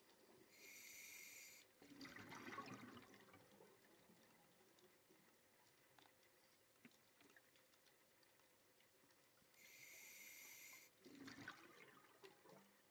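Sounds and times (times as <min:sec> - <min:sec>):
faint crackle of clicks: 0:00.0 - 0:00.6, 0:01.6 - 0:12.9
regulator hiss of inhaled air: 0:00.5 - 0:01.7, 0:09.6 - 0:10.9
exhaled bubbles underwater: 0:01.8 - 0:04.8, 0:11.0 - 0:12.9.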